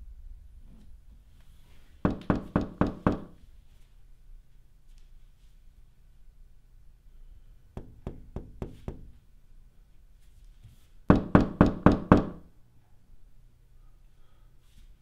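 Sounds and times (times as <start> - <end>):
knocking on a door: 2.0 - 3.4, 7.8 - 9.2, 11.1 - 12.4.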